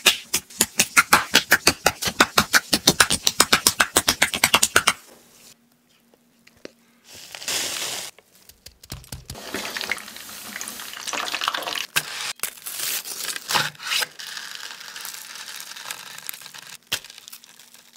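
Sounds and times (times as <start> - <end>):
breadcrumbs pouring: 9.2 - 11.9
fried crust crackling and crunching: 14.2 - 17.9.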